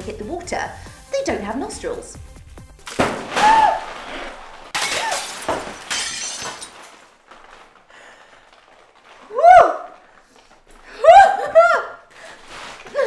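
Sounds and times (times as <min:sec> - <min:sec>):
water splashing on helmet: 0:02.8 - 0:04.8.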